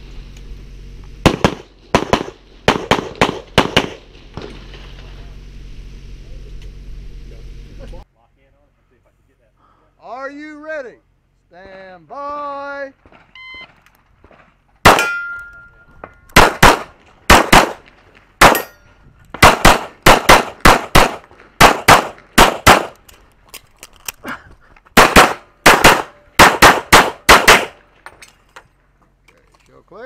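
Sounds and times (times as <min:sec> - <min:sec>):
pistol shots in quick pairs: 0:01.2 - 0:04.1, 0:14.8 - 0:15.2, 0:16.3 - 0:18.7, 0:19.4 - 0:23.0, 0:25.0 - 0:27.8.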